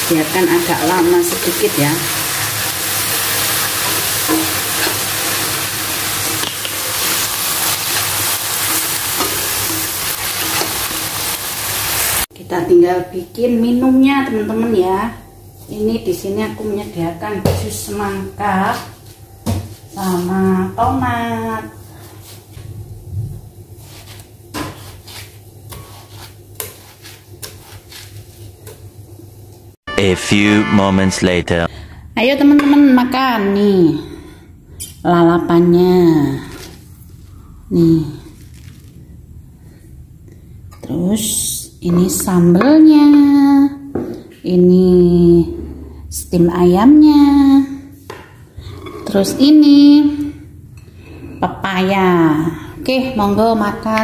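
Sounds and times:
papaya sizzling in oil: 0:00.0 - 0:12.3.

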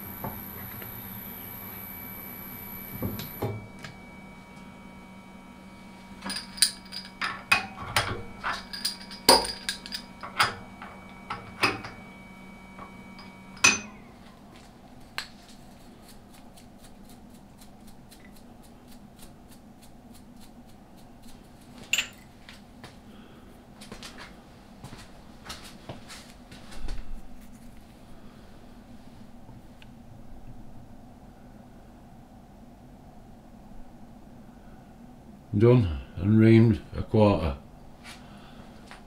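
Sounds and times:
low machine hum: 0:00.0 - 0:39.0
metal tools clinking: 0:06.2 - 0:12.0, 0:13.2 - 0:14.1, 0:21.9 - 0:22.3.

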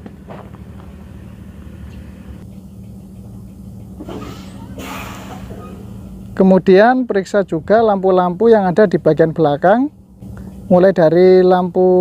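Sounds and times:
truck engine idling: 0:00.0 - 0:07.4
brief rush of noise: 0:04.0 - 0:06.0.

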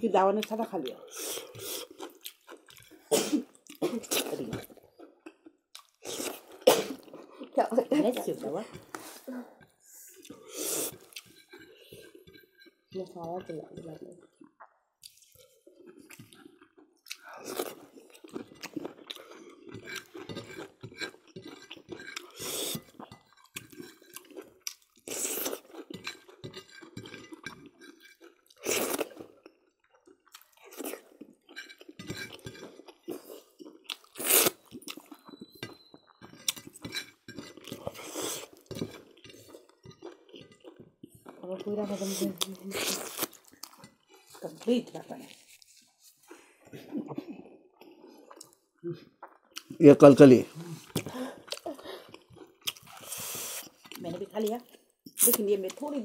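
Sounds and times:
people chewing with mouths open: 0:00.2 - 0:56.0
fingers scraping food on plates: 0:08.0 - 0:13.9, 0:33.9 - 0:40.8
dishes clinking: 0:35.4 - 0:37.9.

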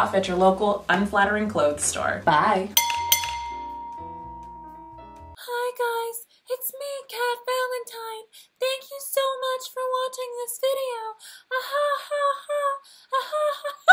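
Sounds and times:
woman singing unaccompanied: 0:05.4 - 0:13.9.

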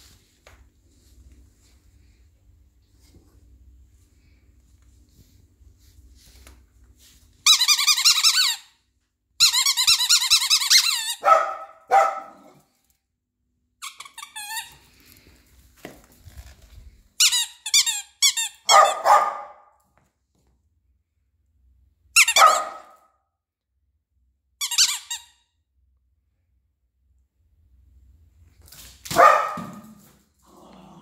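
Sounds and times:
dog barking: 0:11.2 - 0:12.6, 0:18.6 - 0:19.7, 0:22.3 - 0:23.1, 0:29.1 - 0:30.0.

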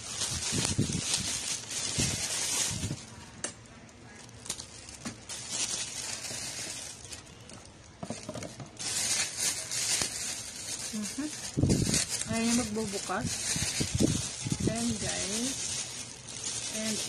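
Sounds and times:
packaging rustling and crinkling: 0:00.0 - 0:17.0.

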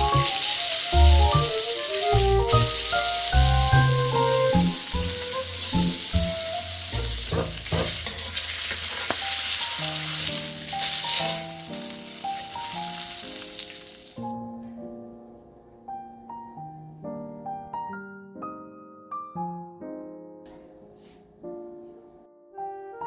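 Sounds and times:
fish sizzling in a pan: 0:00.0 - 0:14.4
background music: 0:00.0 - 0:23.0.

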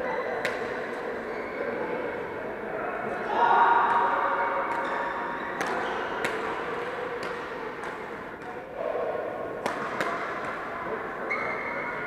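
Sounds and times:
rackets hitting shuttlecocks: 0:05.6 - 0:08.6, 0:09.6 - 0:10.8.

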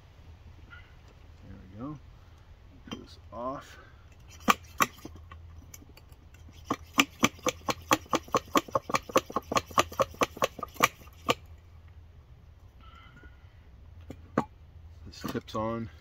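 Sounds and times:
fuel pump clicking strokes: 0:04.1 - 0:11.5.

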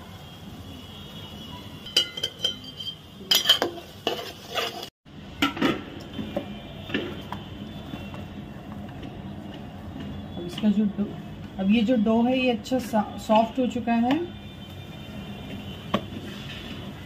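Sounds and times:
metal spoon clinking on pot: 0:01.9 - 0:04.9.

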